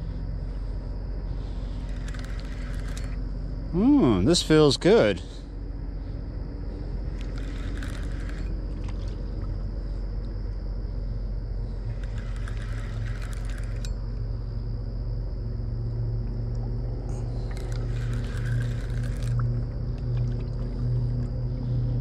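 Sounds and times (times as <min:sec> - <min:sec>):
high insect drone: 0:00.0 - 0:22.0
low engine rumble: 0:00.0 - 0:22.0
fishing reel clicking and rattling: 0:01.8 - 0:03.2, 0:07.1 - 0:08.7, 0:11.8 - 0:14.0, 0:17.4 - 0:19.4.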